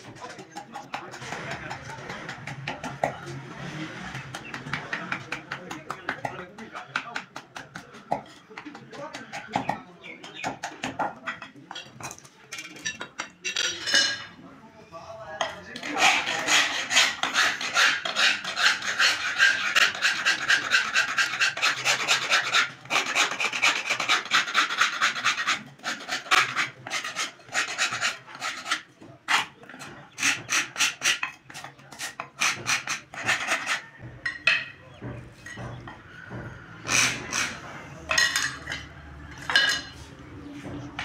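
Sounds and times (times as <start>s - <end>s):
hand file rasping on wood: 0.0s - 11.1s, 15.8s - 34.1s, 35.0s - 39.6s.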